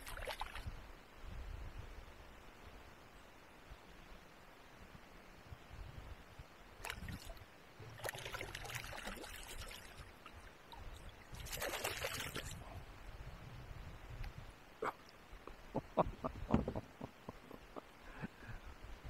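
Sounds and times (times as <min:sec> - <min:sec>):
water splashing beside kayak: 0:00.0 - 0:00.7, 0:06.8 - 0:12.7.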